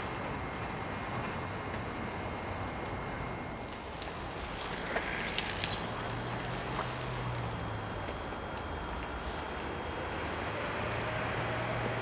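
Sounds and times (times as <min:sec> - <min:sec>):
low engine-like hum: 0:00.0 - 0:12.0
outdoor background rumble: 0:00.0 - 0:12.0.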